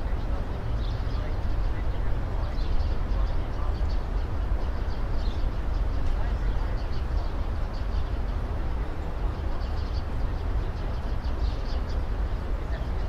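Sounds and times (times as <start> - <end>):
diesel locomotive rumble: 0.0 - 13.0.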